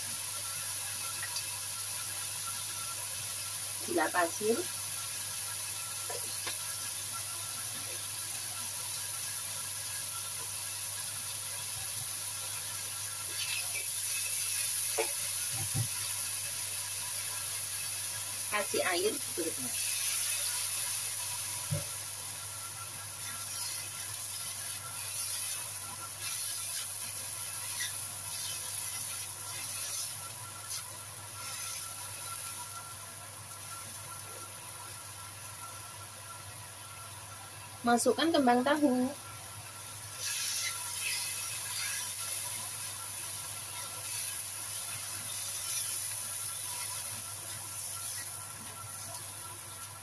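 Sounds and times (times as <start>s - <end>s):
stir-frying sizzle in a wok: 0.0s - 50.0s
spatula scraping and tapping wok: 13.3s - 16.1s, 40.2s - 48.9s
spatula scraping: 40.2s - 42.3s.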